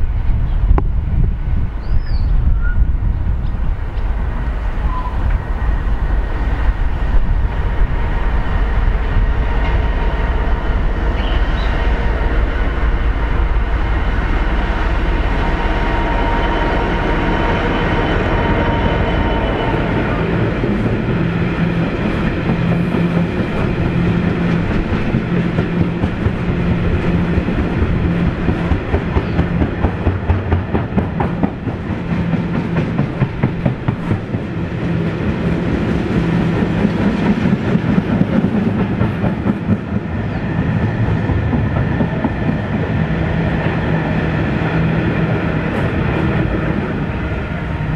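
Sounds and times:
train wheels clattering over rail joints: 20.6s - 43.2s.

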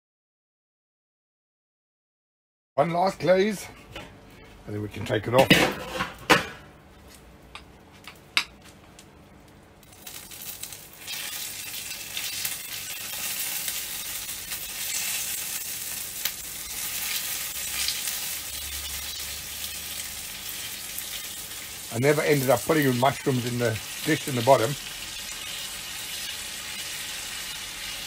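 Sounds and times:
fat sizzling on hot charcoal: 9.8s - 28.0s.

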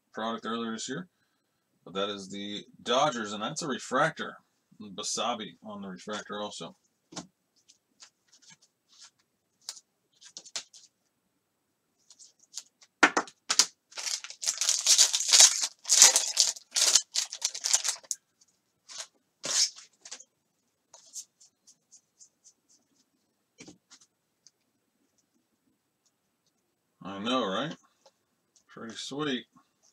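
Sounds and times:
wrapper tearing and crinkling: 13.5s - 18.2s, 18.9s - 20.2s.

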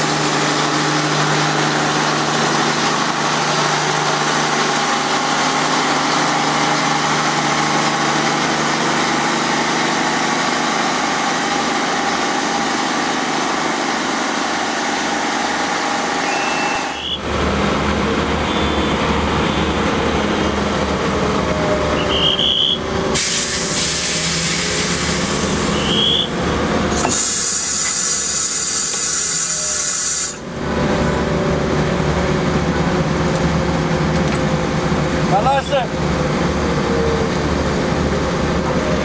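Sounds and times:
train diesel engines idling: 0.0s - 39.0s
loud hiss: 23.2s - 26.0s, 27.0s - 30.4s.

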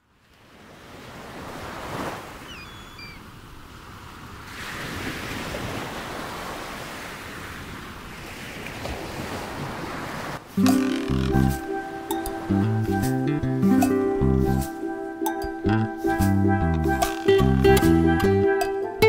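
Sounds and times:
rushing sea water: 0.0s - 17.9s
faint high chirps: 2.5s - 3.2s.

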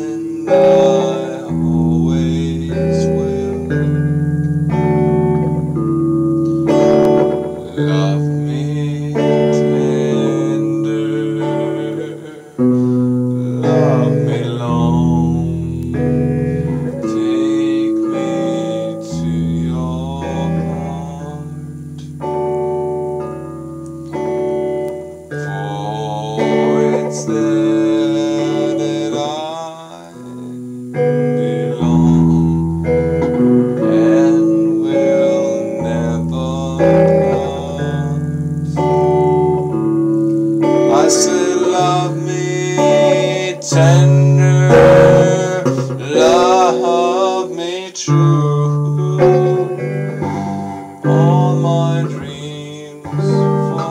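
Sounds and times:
man singing: 0.0s - 22.4s, 25.3s - 53.9s
guitar chords: 0.0s - 53.9s.

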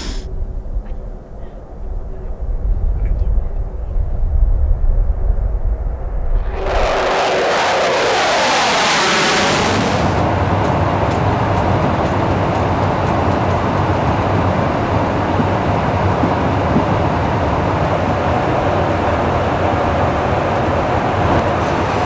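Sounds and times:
low drone of aircraft cabin: 0.0s - 22.0s
jet engine roaring flyby: 5.2s - 12.8s.

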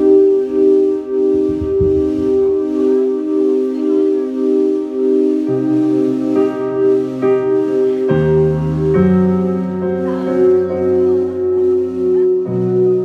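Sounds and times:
held keyboard chords: 0.0s - 13.0s
low bass line: 0.0s - 13.0s.

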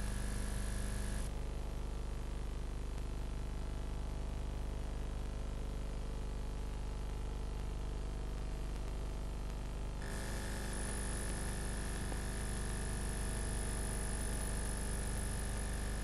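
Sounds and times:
videotape hum and hiss: 0.0s - 16.0s
high whine: 10.0s - 16.0s.

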